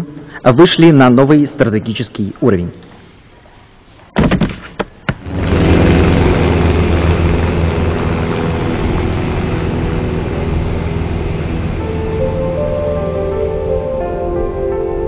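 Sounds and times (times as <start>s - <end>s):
aircraft engine drone: 5.2s - 15.0s.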